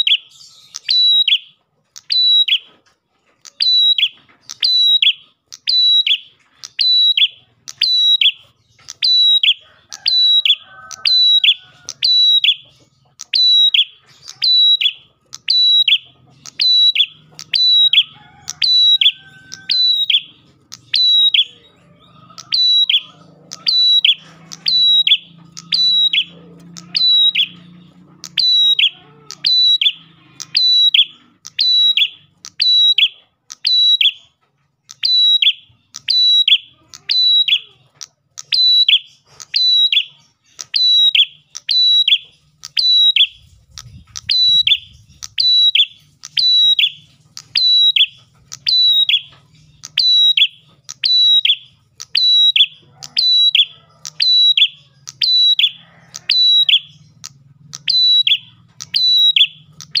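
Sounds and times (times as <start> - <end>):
bird singing sharp high notes: 22.4 - 34.3.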